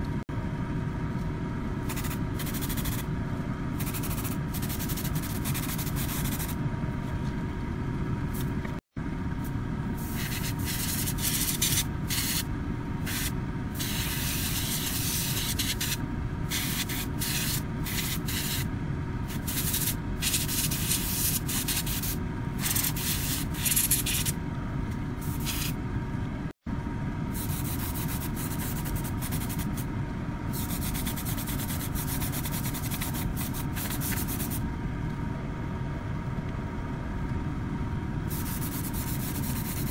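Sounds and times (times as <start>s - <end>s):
steady low hum: 0.0s - 39.9s
airbrush spraying hiss: 1.9s - 3.0s, 10.0s - 18.7s, 19.4s - 24.4s, 25.2s - 25.8s, 27.4s - 29.8s, 30.5s - 34.6s, 38.3s - 39.9s.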